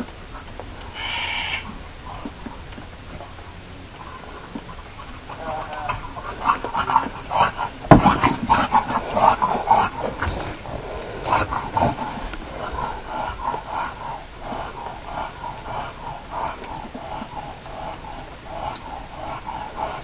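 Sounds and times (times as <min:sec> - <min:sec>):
dogs making high-pitched calls: 0:00.9 - 0:01.8.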